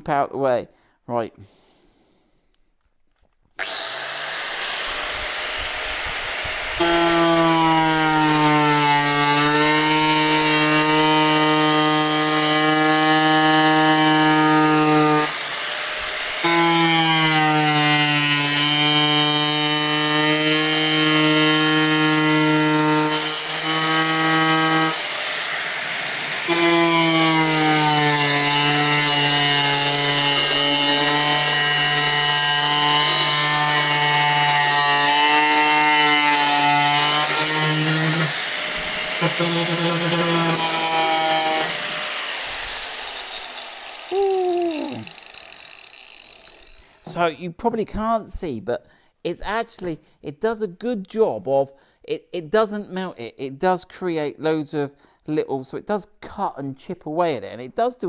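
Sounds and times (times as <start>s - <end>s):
power saw cutting plastic: 3.6s - 47.2s.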